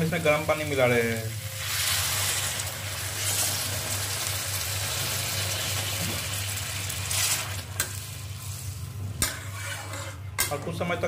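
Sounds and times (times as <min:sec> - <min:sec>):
hot water hissing into a pan: 0:00.0 - 0:08.8.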